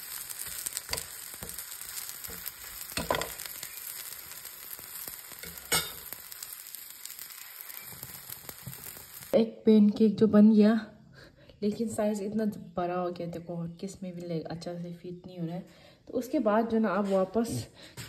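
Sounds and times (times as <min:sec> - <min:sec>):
pancake sizzling in a frying pan: 0:00.0 - 0:09.4
knocks or scrapes on pan: 0:00.5 - 0:03.6, 0:05.3 - 0:06.2.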